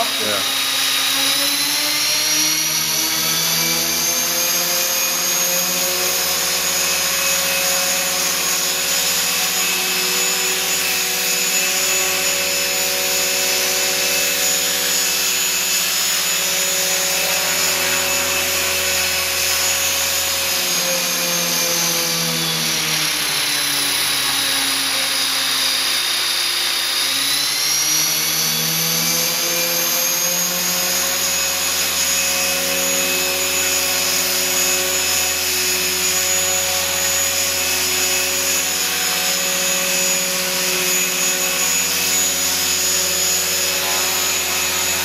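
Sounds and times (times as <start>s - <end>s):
rc helicopter motor whine: 0.0s - 45.0s.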